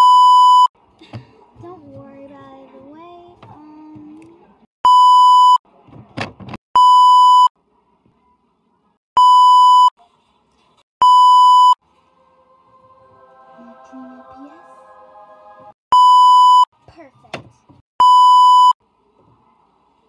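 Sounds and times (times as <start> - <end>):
censor bleeps: 0.0 - 0.7, 4.9 - 5.6, 6.8 - 7.5, 9.2 - 9.9, 11.0 - 11.8, 15.9 - 16.7, 18.0 - 18.8
soft chord of held tones: 12.3 - 15.8.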